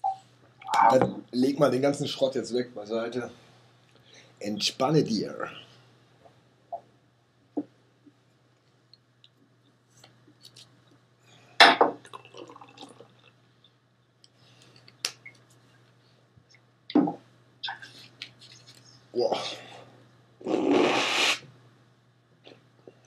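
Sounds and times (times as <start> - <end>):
faint steady hum: 0.0 - 23.0
objects knocking on a desk: 16.9 - 17.2.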